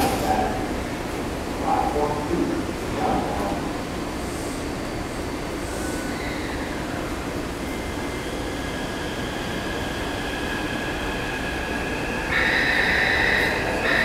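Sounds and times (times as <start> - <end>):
station rumble and hiss: 0.0 - 14.0
high-pitched door warning tone: 12.3 - 14.0.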